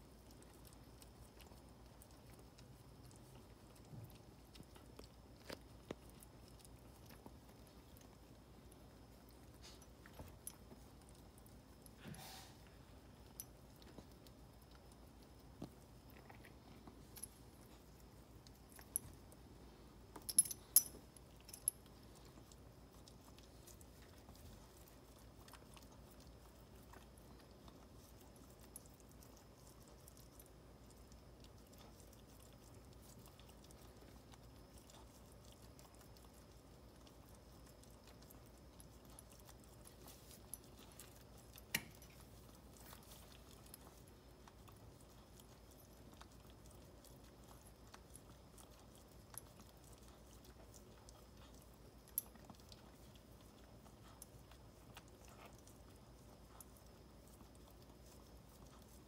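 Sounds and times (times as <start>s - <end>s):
dog licking and nibbling: 0.0s - 59.0s.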